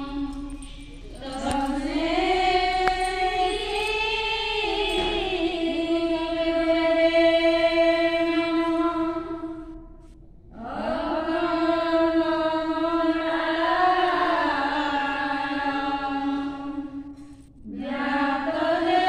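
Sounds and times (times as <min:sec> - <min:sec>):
women singing a chant: 0:00.0 - 0:09.8, 0:10.5 - 0:19.0.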